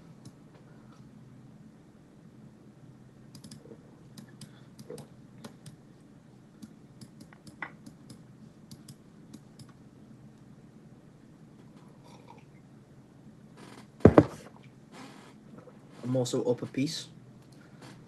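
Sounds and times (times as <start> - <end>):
low steady hum: 0.0 - 18.0
computer mouse clicks: 3.3 - 5.8, 6.6 - 9.8.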